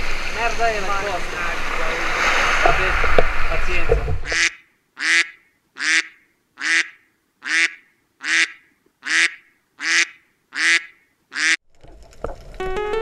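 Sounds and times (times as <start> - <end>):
duck quacking: 4.2 - 11.6.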